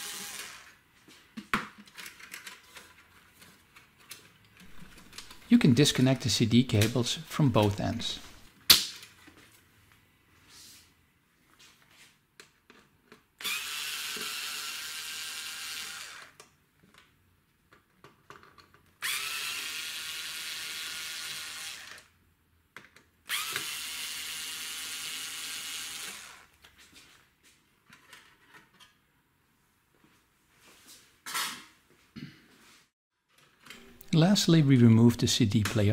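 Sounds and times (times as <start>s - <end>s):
electric screwdriver running: 0.0s - 0.7s, 13.4s - 16.4s, 19.0s - 22.1s, 23.3s - 26.5s
clicks and handling noises: 1.2s - 9.6s, 16.4s - 19.0s, 27.8s - 29.0s.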